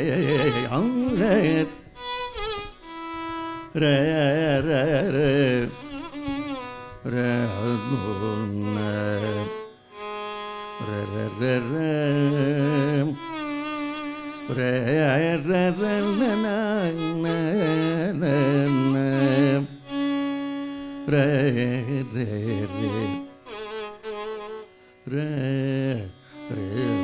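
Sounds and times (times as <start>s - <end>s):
man singing ornamented phrases: 0.0s - 1.9s, 3.7s - 6.1s, 7.0s - 9.8s, 10.8s - 13.5s, 14.4s - 19.9s, 21.0s - 23.3s, 25.0s - 27.0s
violin: 0.0s - 27.0s.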